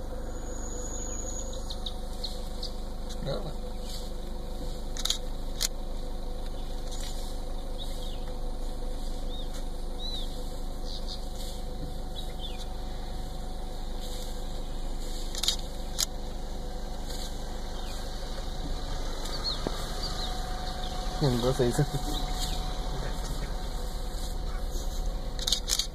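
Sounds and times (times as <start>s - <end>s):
faint high chirps: 0.0s - 2.9s
car engine idling: 0.0s - 25.9s
sharp clicks: 4.9s - 5.8s, 15.3s - 16.2s, 25.3s - 25.9s.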